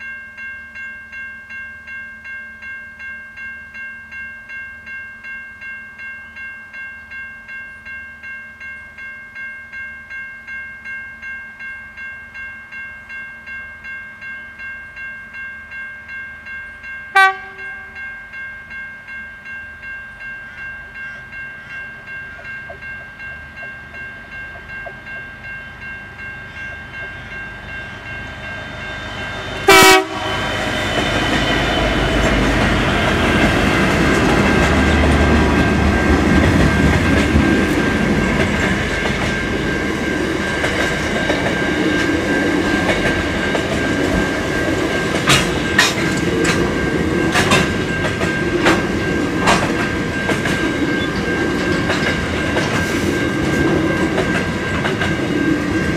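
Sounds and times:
diesel locomotive throbbing: 0:20.1 - 0:55.9
wheel clacks over rail joints: 0:40.6 - 0:55.3.

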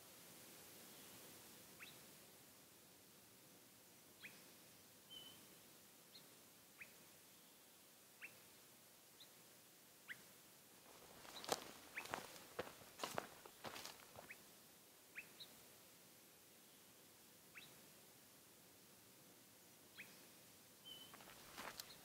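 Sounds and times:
footsteps crunching on forest floor: 0:10.9 - 0:14.4, 0:21.1 - 0:22.0.

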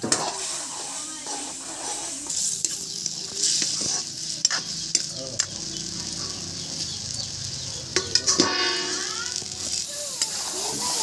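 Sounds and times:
ladle scraping a wok: 0:00.0 - 0:05.1, 0:08.1 - 0:11.0
curry sizzling: 0:00.0 - 0:11.0.

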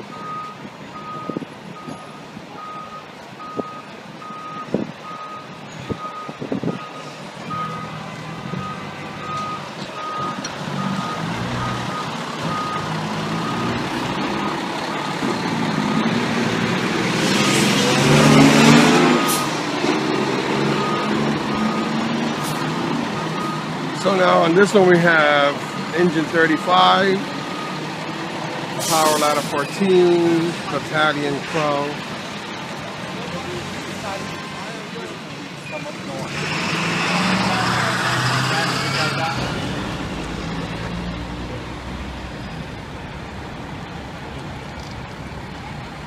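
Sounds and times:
fire engine rumble: 0:00.0 - 0:36.6, 0:37.4 - 0:46.0
reverse alarm beeping: 0:00.1 - 0:13.8, 0:20.7 - 0:22.0, 0:22.8 - 0:23.7
loud hiss: 0:28.8 - 0:29.6.

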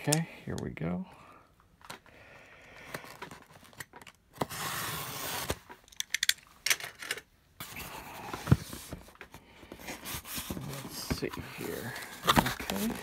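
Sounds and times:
packing tape tearing from cardboard: 0:03.0 - 0:05.8
cardboard scraping: 0:04.4 - 0:05.6, 0:09.7 - 0:13.0.

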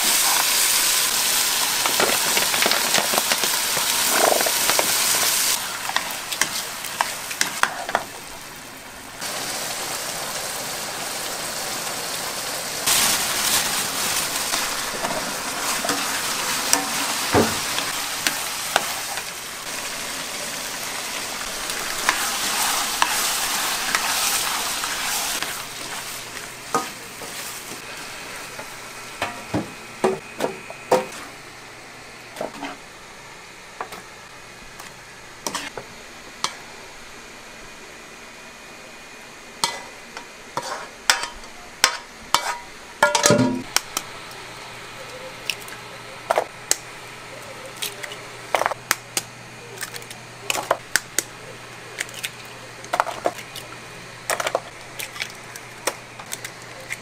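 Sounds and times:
frying sizzle: 0:00.0 - 0:38.6, 0:39.2 - 0:57.0
utensils knocking on pots and dishes: 0:41.1 - 0:43.8.

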